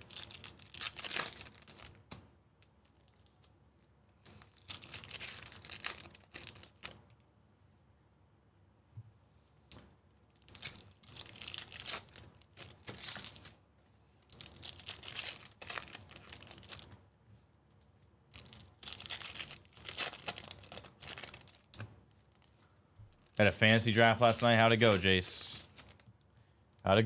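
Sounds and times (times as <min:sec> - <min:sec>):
foil wrappers tearing and crinkling: 0:00.0 - 0:02.0, 0:04.3 - 0:07.0, 0:10.3 - 0:13.6, 0:14.2 - 0:16.9, 0:18.3 - 0:22.5, 0:23.1 - 0:26.1.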